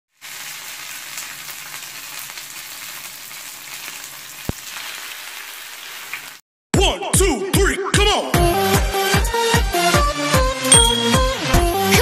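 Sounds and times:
food deep-frying in oil: 0.1 - 6.4.

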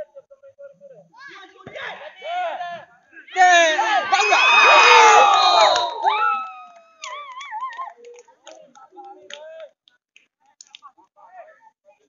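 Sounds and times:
spectators shouting and cheering: 3.3 - 7.9.

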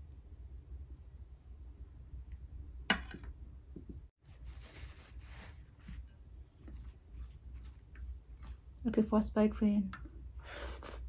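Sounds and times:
low room hum: 0.0 - 11.0
hand mixing food on plate: 4.3 - 8.8.

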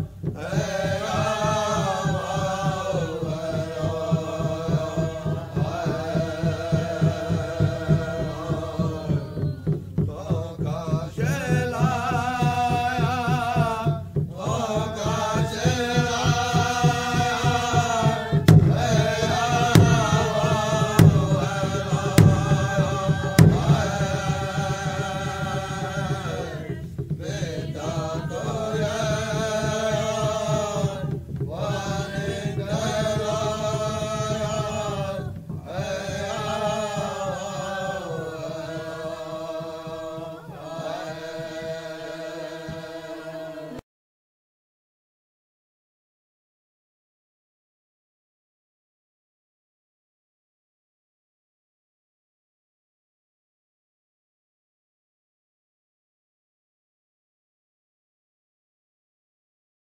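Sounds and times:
chant-like singing over fast beat: 0.0 - 43.8
sharp percussive hits: 15.8 - 27.2.

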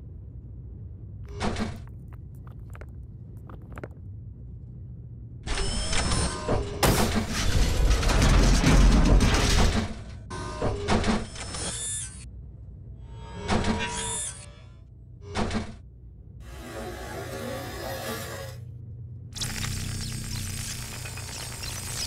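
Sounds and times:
low hum: 0.0 - 22.0
mechanical whirring and grinding: 5.4 - 12.3, 13.0 - 15.8, 16.4 - 18.8, 19.4 - 22.0.

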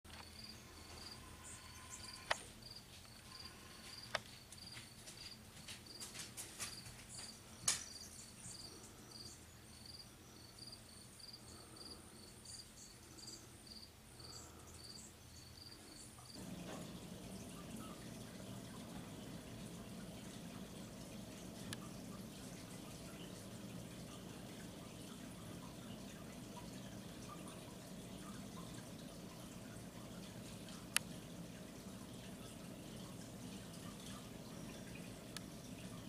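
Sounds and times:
trickling water: 0.1 - 2.4, 16.3 - 36.0
cricket chirping: 0.1 - 6.1, 6.7 - 35.9.

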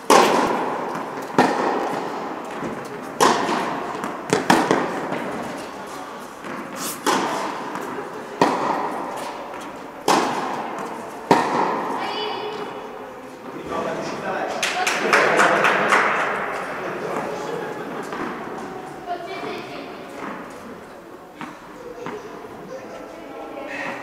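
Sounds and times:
tennis ball bouncing on court: 0.0 - 5.7, 6.4 - 12.8, 19.4 - 20.6, 21.4 - 22.3
tennis ball struck by rackets: 0.0 - 5.8, 6.4 - 12.8.

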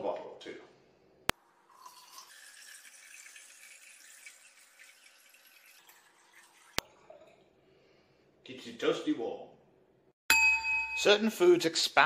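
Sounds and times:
water pouring into bottle: 1.4 - 7.6.

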